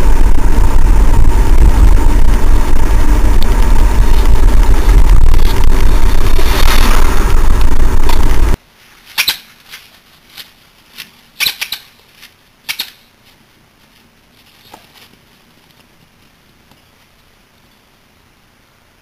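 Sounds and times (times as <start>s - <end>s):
car interior driving noise: 0.0s - 8.6s
short sharp squeaks: 9.1s - 9.9s, 11.4s - 12.0s.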